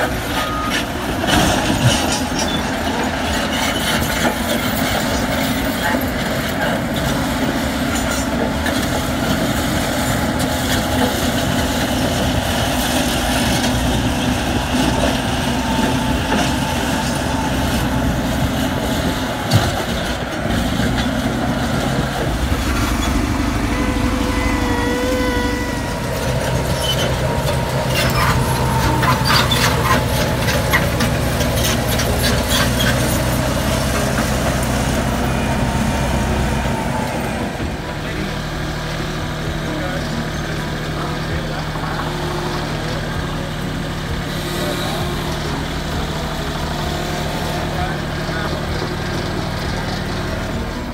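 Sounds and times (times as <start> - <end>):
heavy diesel machinery running: 0.0 - 50.9
brief tone: 0.3 - 1.0, 22.5 - 27.2.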